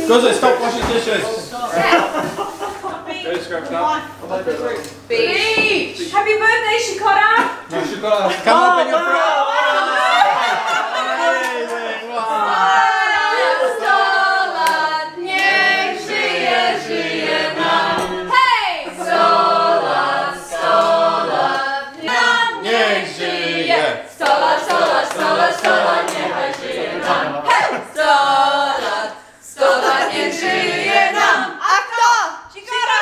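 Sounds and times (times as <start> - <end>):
group singing unaccompanied: 8.4 - 33.0.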